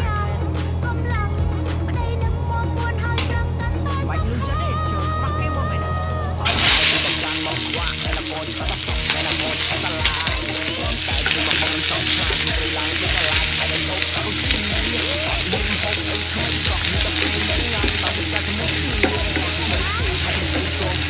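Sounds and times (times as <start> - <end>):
onions sizzling in oil: 6.5 - 21.0
wooden spatula stirring: 6.5 - 21.0.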